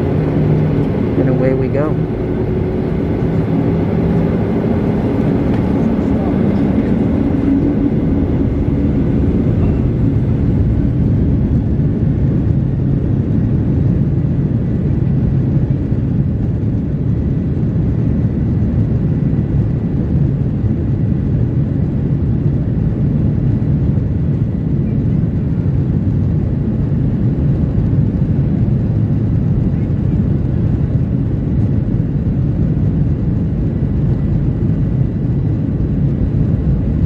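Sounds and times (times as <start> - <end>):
jet engine cabin rumble: 0.0 - 37.0.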